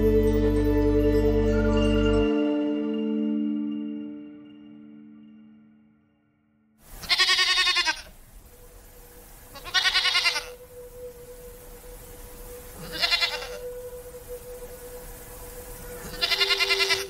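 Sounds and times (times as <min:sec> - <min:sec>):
faint steady hum: 0:06.8 - 0:17.0
goat bleating: 0:07.0 - 0:08.1, 0:09.5 - 0:10.6, 0:12.8 - 0:13.6, 0:16.0 - 0:17.0.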